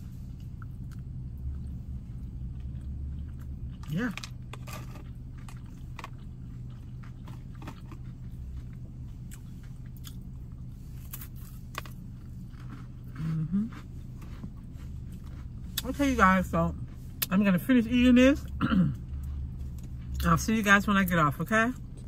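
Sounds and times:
steady low hum: 0:00.0 - 0:22.0
person chewing crunchy food: 0:00.1 - 0:16.0.

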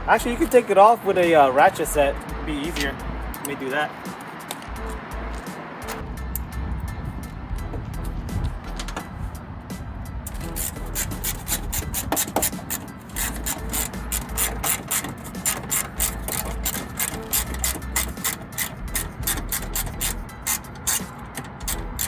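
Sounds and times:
socket ratchet clicking: 0:10.3 - 0:22.0.

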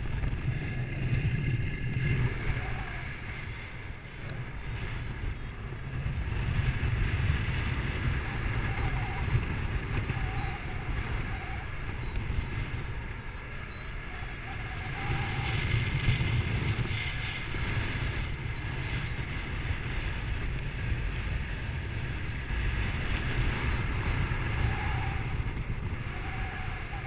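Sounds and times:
wind buffeting microphone: 0:00.0 - 0:27.0
variometer quick beeps: 0:03.3 - 0:20.6, 0:21.8 - 0:24.9, 0:26.6 - 0:27.0.

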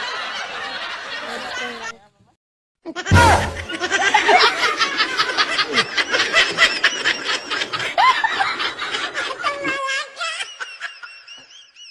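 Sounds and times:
snickering laughs: 0:03.2 - 0:11.9.

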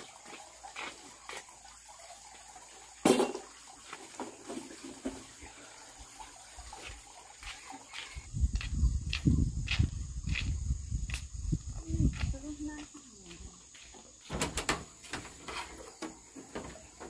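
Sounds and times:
basket clicks and rustles: 0:14.3 - 0:17.0.

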